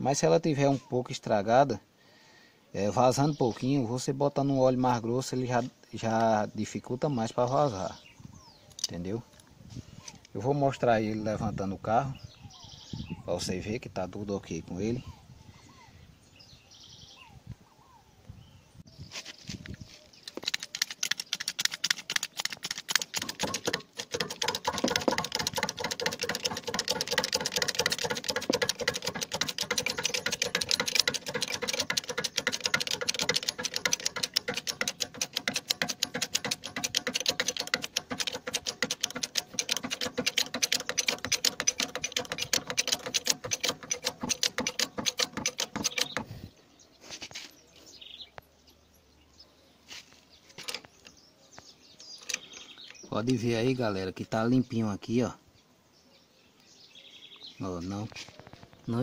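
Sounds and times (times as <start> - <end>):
hydraulic jack pumping clicks: 20.3 - 46.4.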